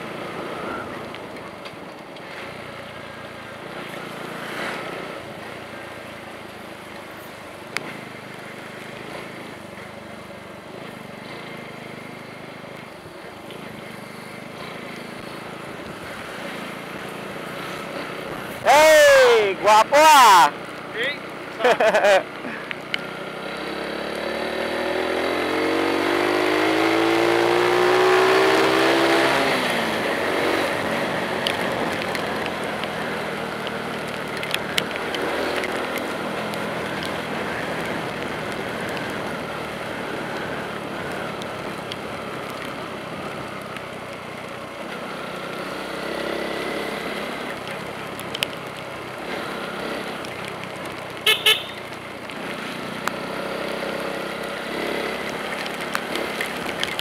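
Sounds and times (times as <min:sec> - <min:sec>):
tyres on wet road: 0:00.0 - 0:57.0
vehicle engine revving: 0:21.6 - 0:41.5
vehicle horn toots: 0:51.2 - 0:51.8.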